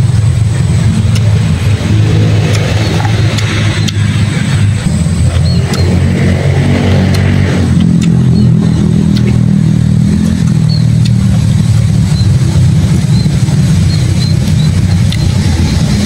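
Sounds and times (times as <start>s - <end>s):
motor engine droning: 0.0s - 16.0s.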